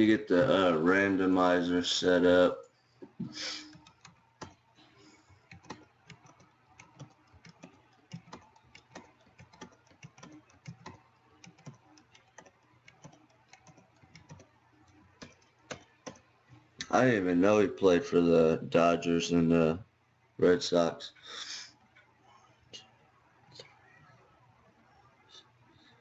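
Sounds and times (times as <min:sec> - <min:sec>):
computer keyboard key clicks: 0:05.5 - 0:16.2.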